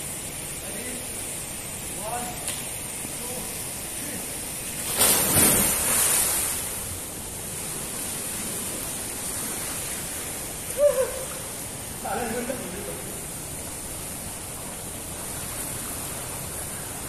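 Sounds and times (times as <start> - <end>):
steady hiss: 0.0 - 17.0
loud splash into pool: 4.8 - 6.7
water sloshing: 4.8 - 7.0.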